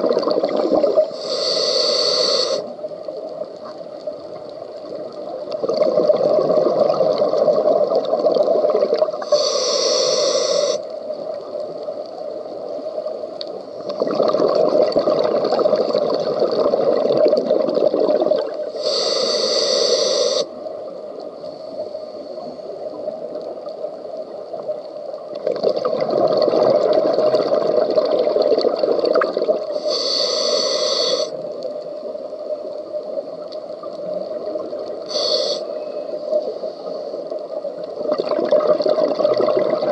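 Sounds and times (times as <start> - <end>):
bubbling underwater exhalation: 0.0 - 1.1, 5.6 - 9.2, 13.9 - 18.5, 25.4 - 29.6, 38.1 - 39.9
regulator inhalation hiss: 1.1 - 2.9, 9.2 - 11.0, 18.7 - 20.7, 29.7 - 31.6, 34.4 - 37.3.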